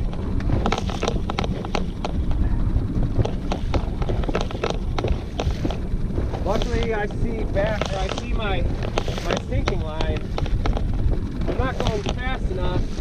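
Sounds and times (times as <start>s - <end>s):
sharp knocks and clicks: 0.0s - 2.4s, 3.0s - 12.4s
wind buffeting microphone: 0.0s - 13.0s.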